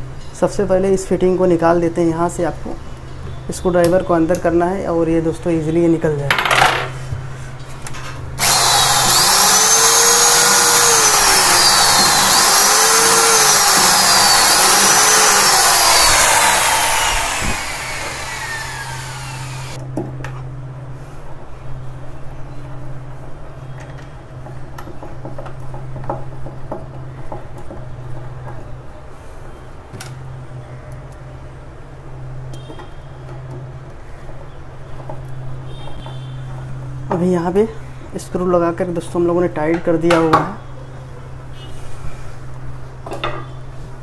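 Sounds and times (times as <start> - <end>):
cordless drill motor whine: 8.4 - 19.8.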